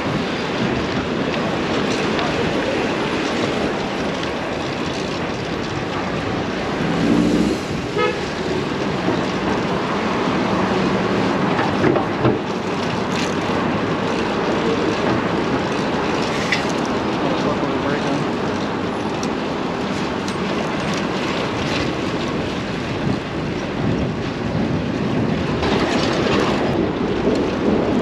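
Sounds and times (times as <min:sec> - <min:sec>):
road traffic: 0:00.0 - 0:28.0
wind noise: 0:00.0 - 0:28.0
car horn toot: 0:07.9 - 0:08.3.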